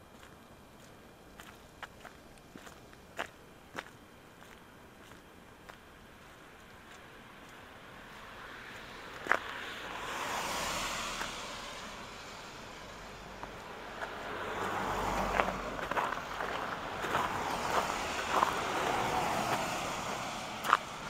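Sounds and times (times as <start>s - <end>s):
footsteps crunching on snow: 0.1s - 8.2s, 13.4s - 19.8s, 20.6s - 20.9s
tyres hissing on wet street: 8.0s - 21.0s.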